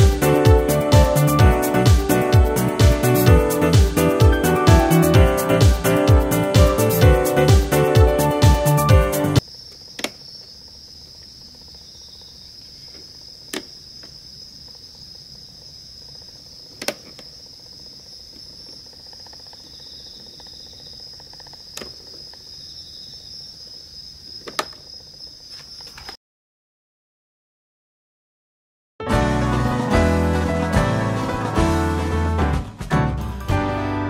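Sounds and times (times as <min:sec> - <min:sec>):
night insects trilling: 0:09.4 - 0:26.2.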